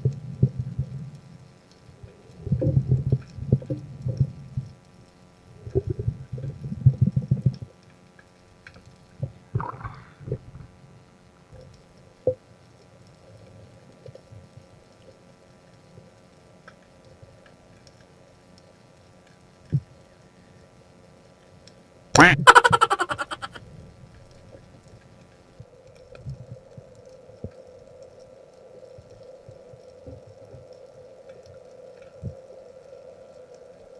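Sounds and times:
underwater water movement: 5.5s - 10.8s.

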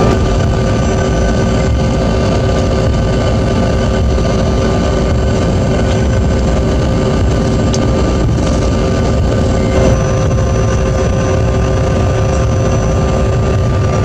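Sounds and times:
jet engines idling: 0.0s - 14.0s
steady whining tones: 0.0s - 14.0s.

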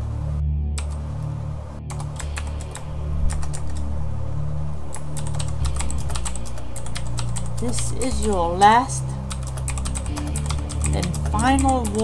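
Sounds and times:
low steady hum: 0.0s - 12.0s
keyboard typing clicks: 4.9s - 8.4s.

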